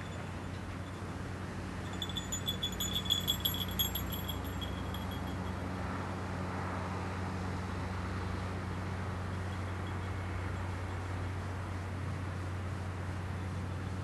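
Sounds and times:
steady low hum: 0:00.0 - 0:05.6
small bell jingling: 0:00.0 - 0:05.7.

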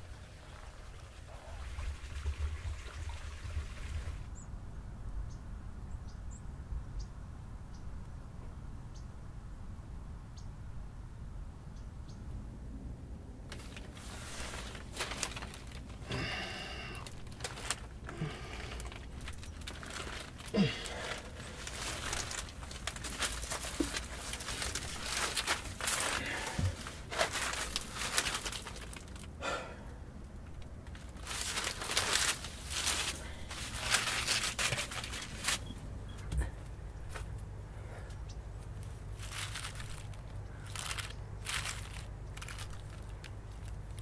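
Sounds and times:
reed mat rustling and crackling: 0:13.5 - 0:29.4, 0:30.4 - 0:44.0.

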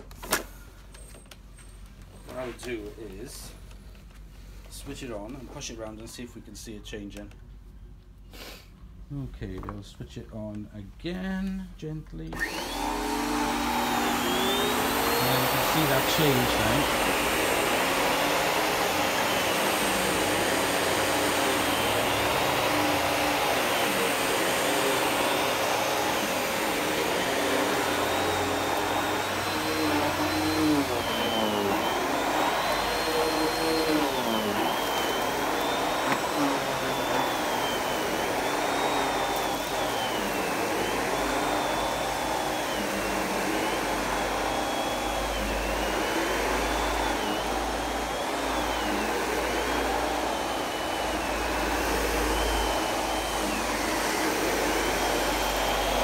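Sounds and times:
vacuum cleaner on carpet: 0:02.3 - 0:03.5, 0:12.3 - 0:56.0.

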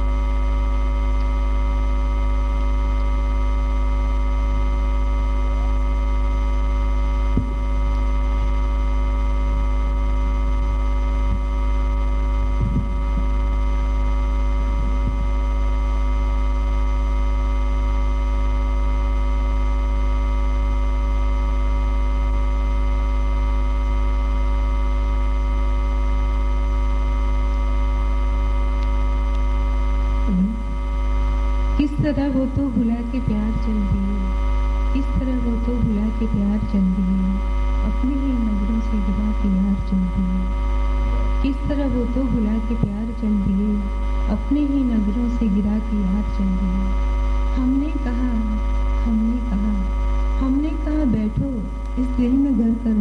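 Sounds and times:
electrical mains hum: 0:00.0 - 0:53.0.

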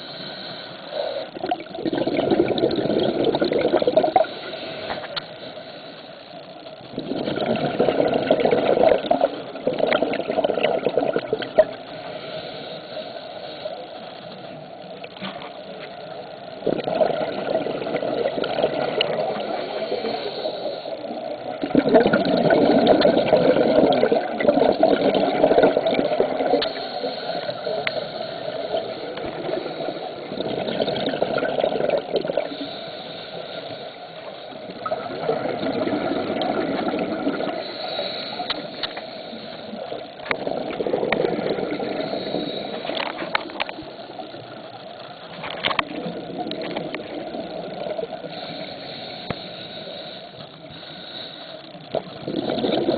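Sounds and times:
scuba regulator breathing: 0:00.0 - 0:09.9, 0:11.2 - 0:52.9
exhaled bubbles rushing: 0:01.4 - 0:04.4, 0:06.9 - 0:11.8, 0:16.6 - 0:19.6, 0:21.4 - 0:26.7, 0:28.8 - 0:32.5, 0:34.7 - 0:37.6, 0:40.2 - 0:43.7, 0:45.8 - 0:48.3, 0:51.9 - 0:52.9.

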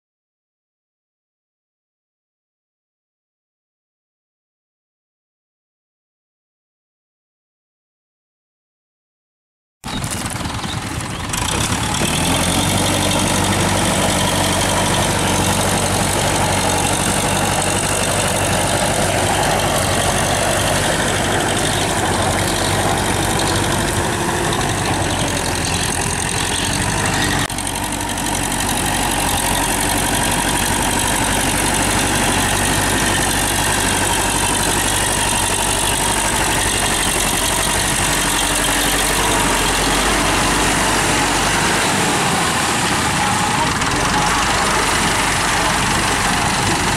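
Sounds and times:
tractor diesel engine running: 0:09.8 - 0:46.9.

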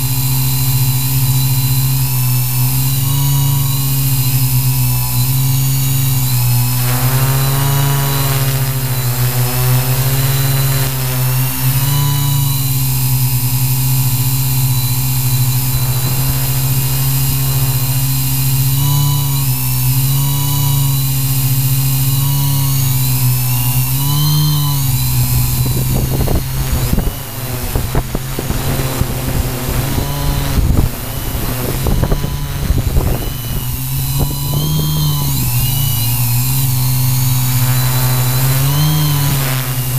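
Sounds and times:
drone motors droning: 0:00.0 - 0:39.9
wind buffeting microphone: 0:14.2 - 0:19.4, 0:24.9 - 0:39.9.

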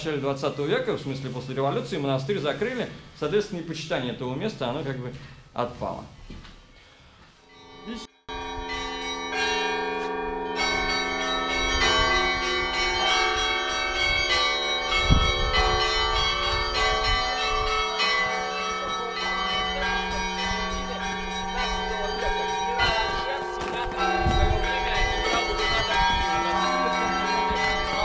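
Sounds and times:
church bells ringing: 0:07.5 - 0:28.0.

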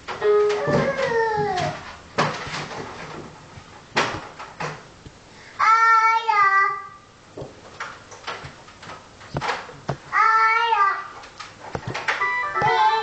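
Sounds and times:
knocks and taps: 0:09.3 - 0:10.0.

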